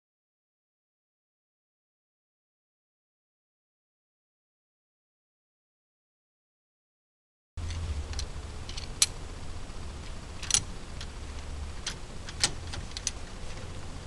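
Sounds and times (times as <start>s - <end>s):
sharp metallic clicks and clinks: 7.6s - 9.2s, 10.4s - 11.1s
low steady rumble: 7.6s - 14.0s.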